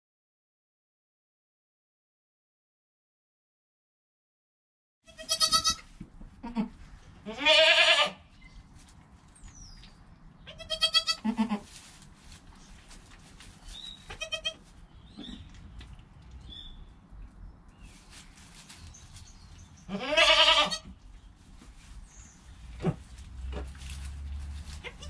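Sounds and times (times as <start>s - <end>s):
young goats bleating: 5.1s - 8.2s, 10.5s - 11.8s, 14.0s - 14.7s, 19.8s - 20.9s, 24.6s - 25.0s.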